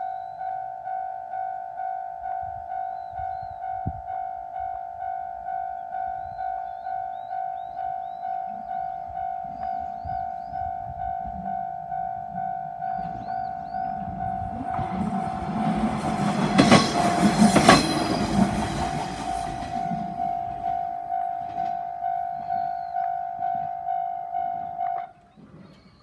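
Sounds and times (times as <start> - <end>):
diesel railcar rumbling: 0.0 - 26.0
train wheel knocks: 12.9 - 21.9
distorted level crossing bell: 18.0 - 25.1.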